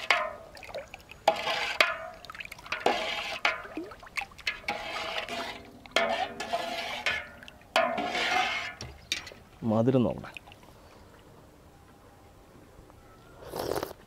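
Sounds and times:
ladle knocking metal pot: 0.0s - 0.6s, 1.3s - 9.4s
liquid swishing and sloshing: 0.0s - 9.6s.

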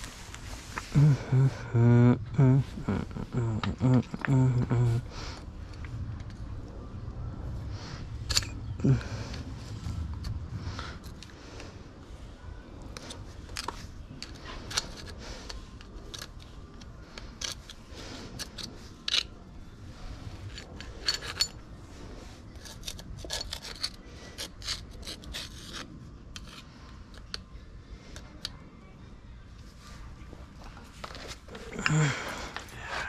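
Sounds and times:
scraping and rubbing of hand work: 0.0s - 6.5s, 7.6s - 27.5s.

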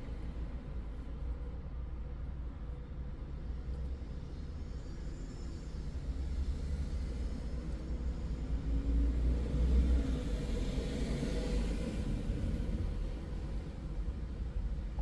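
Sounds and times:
traffic passing with tyre hiss: 5.1s - 14.8s.

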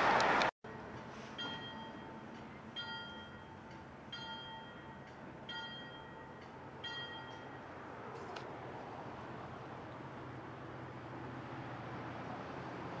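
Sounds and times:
distant train warning bell: 0.7s - 7.9s.

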